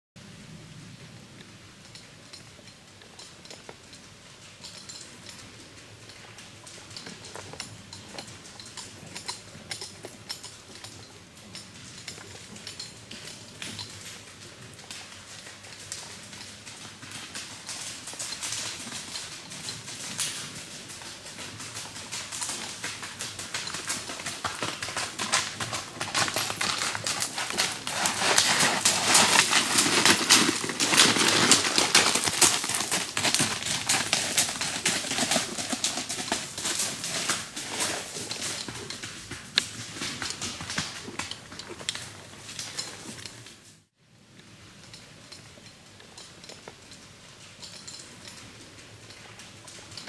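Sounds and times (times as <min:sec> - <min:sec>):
hooves walking through dry leaves: 0:11.8 - 0:43.2.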